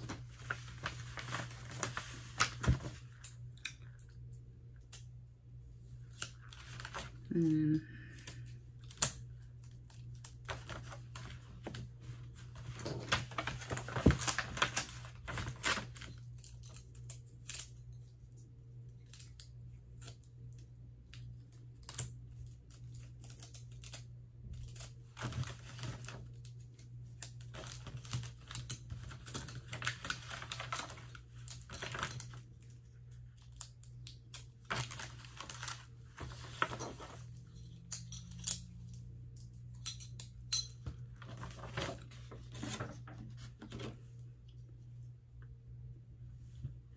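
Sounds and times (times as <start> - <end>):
paper rustling: 0.0 - 3.5, 9.8 - 17.7, 24.6 - 32.5, 34.3 - 37.9, 41.0 - 44.1.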